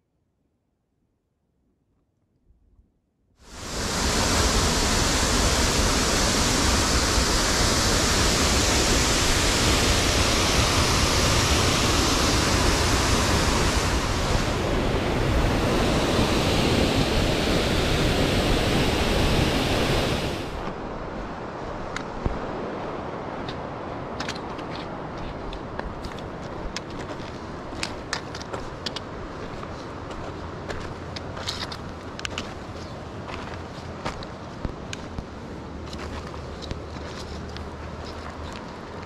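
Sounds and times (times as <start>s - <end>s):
fast-flowing water rushing: 3.4s - 24.1s.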